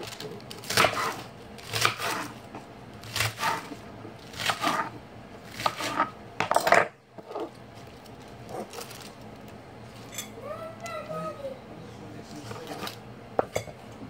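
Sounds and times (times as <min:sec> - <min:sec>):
knife cutting crisp lettuce: 0:00.0 - 0:02.4, 0:03.0 - 0:06.1
leaves being handled: 0:07.5 - 0:10.1.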